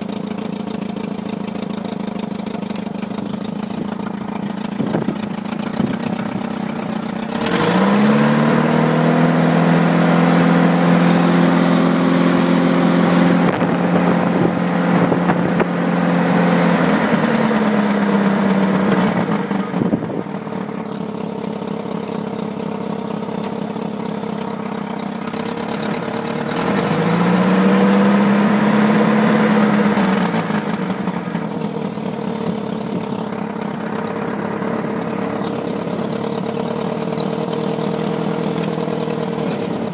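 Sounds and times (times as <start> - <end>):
petrol engine idling and revving: 0.0 - 39.9.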